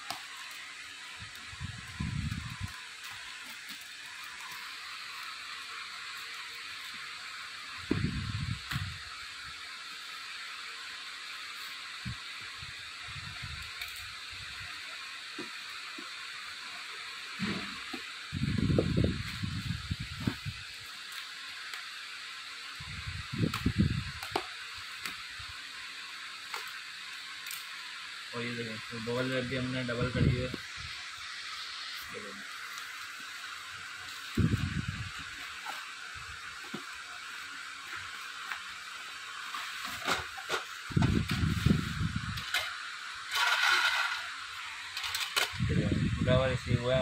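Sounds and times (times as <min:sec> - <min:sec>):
bubble wrap rustling and crinkling: 0:00.0 - 0:07.1
steady background hiss: 0:00.0 - 0:47.0.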